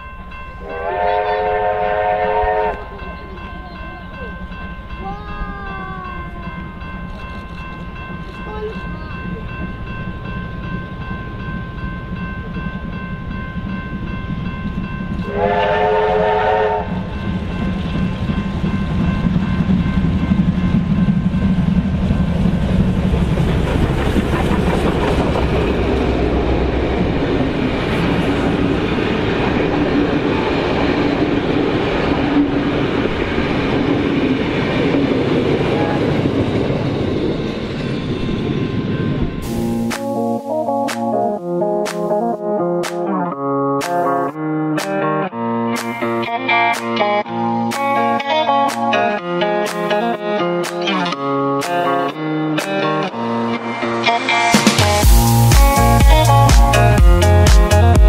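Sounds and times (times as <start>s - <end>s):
steam locomotive rumble: 0.0s - 42.2s, 53.5s - 58.0s
steam whistle: 0.6s - 2.8s, 15.3s - 17.0s.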